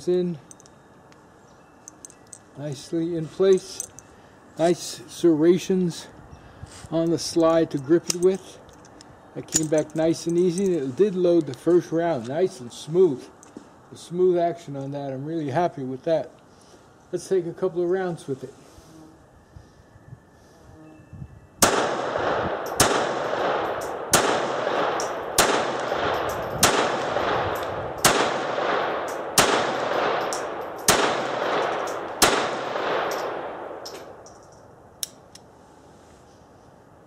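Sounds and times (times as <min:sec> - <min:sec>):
pistol shots echoing: 0:21.6 - 0:34.2.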